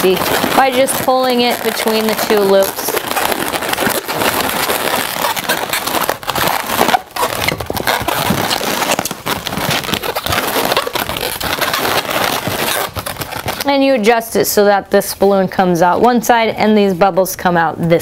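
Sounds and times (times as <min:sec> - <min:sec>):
balloons rubbing and creaking: 0:00.0 - 0:16.5.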